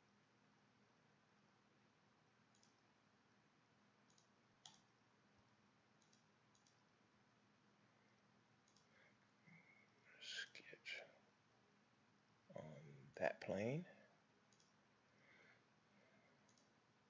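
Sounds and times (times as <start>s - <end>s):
faint computer mouse clicks: 2.5s - 2.8s, 4.1s - 4.9s, 6.0s - 6.8s, 8.6s - 9.0s, 14.5s - 14.8s, 16.4s - 16.7s.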